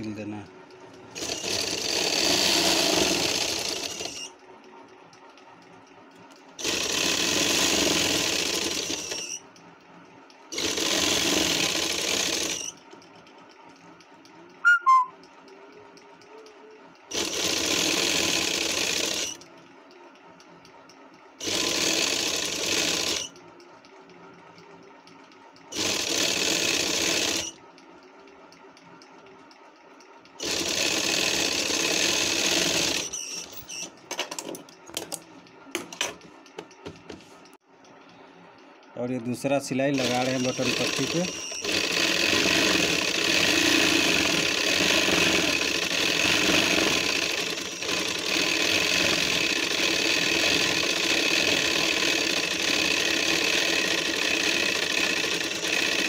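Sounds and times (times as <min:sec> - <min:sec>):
sewing machine running: 0:00.1 - 0:04.5, 0:06.2 - 0:09.6, 0:10.4 - 0:20.4, 0:21.4 - 0:27.8, 0:30.3 - 0:35.0, 0:39.7 - 0:56.0.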